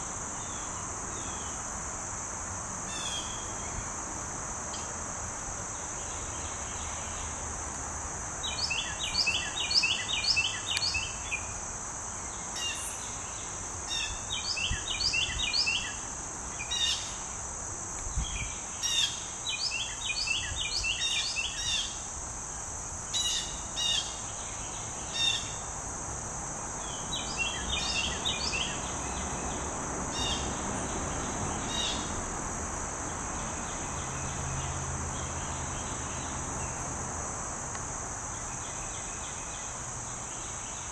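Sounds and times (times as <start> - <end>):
songbird singing: 0.0 - 1.7, 2.9 - 4.1, 5.6 - 25.8, 26.7 - 32.3, 33.0 - 40.9
high-pitched insect chorus: 0.0 - 40.9.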